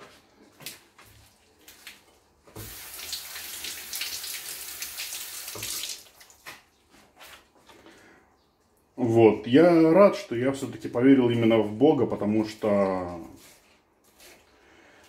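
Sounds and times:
kitchen tap running: 2.6 - 6.3.

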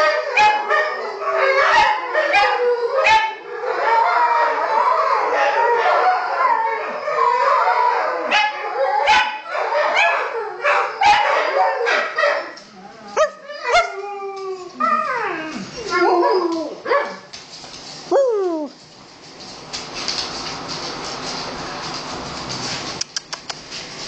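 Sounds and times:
dogs howling together: 0.0 - 17.3.

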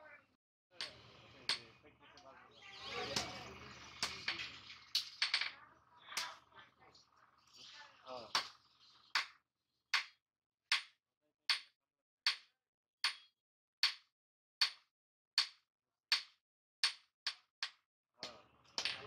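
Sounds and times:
sharp metallic taps: 12.3 - 14.0.

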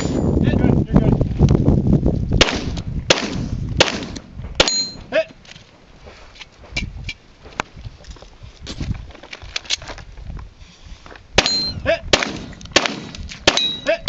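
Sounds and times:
gunshots: 2.4 - 5.0, 11.4 - 14.0.

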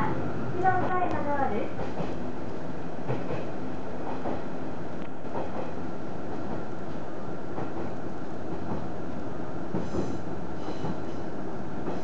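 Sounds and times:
train engine and wheels rumbling: 0.0 - 12.0.

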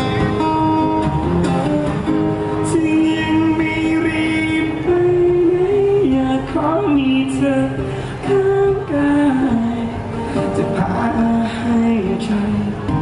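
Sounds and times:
acoustic guitar: 0.0 - 13.0
man singing: 2.6 - 13.0.

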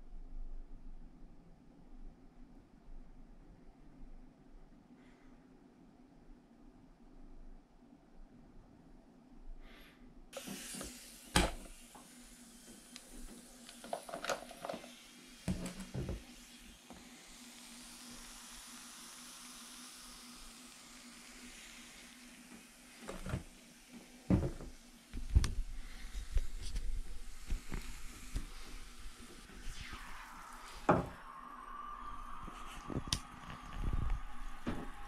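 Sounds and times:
faint steady hiss: 0.0 - 35.0
plastic bottle knocking on bathtub: 24.3 - 24.7.

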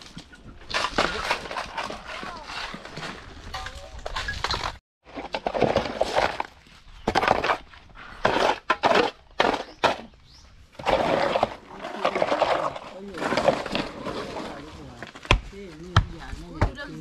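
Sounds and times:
shovels scraping gravel mix: 0.0 - 10.1, 10.8 - 15.2.

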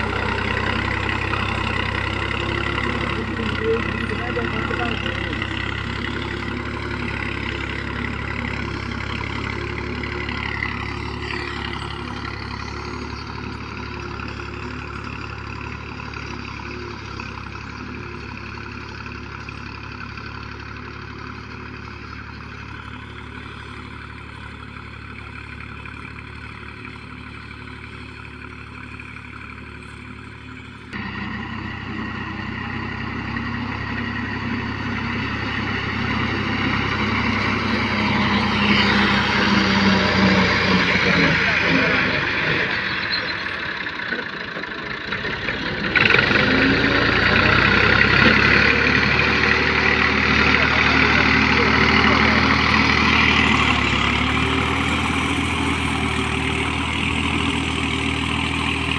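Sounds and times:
tractor diesel engine running: 0.0 - 58.9.

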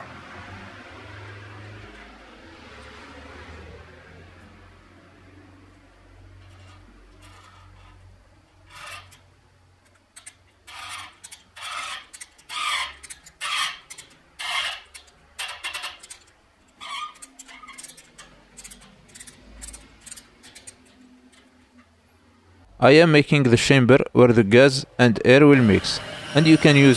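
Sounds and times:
tap rasping scrape in metal: 6.4 - 8.0, 8.6 - 9.3, 9.9 - 21.9.

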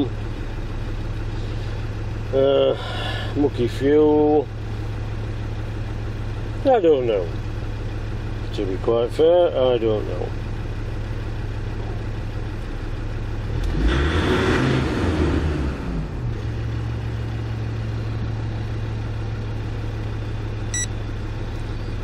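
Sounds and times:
diesel engine idling and revving: 0.0 - 22.0
short electronic beep: 20.7 - 20.9.

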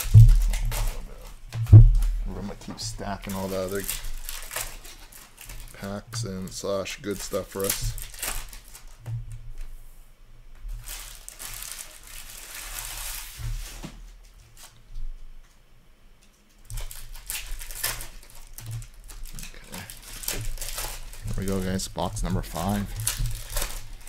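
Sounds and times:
cards rustling and sliding: 16.7 - 24.0.

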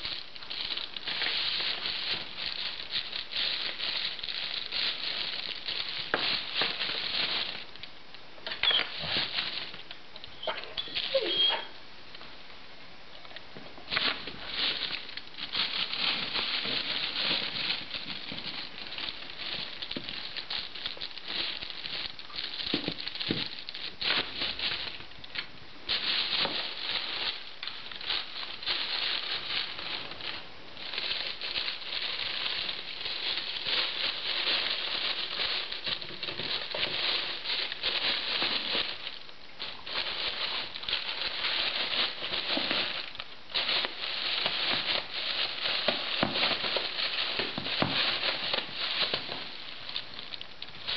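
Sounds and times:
cellophane crinkling: 0.0 - 11.8, 13.2 - 50.9.

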